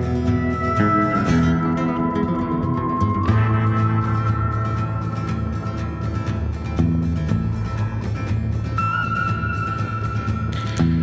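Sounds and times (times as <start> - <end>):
background music with held high note: 0.0 - 6.6.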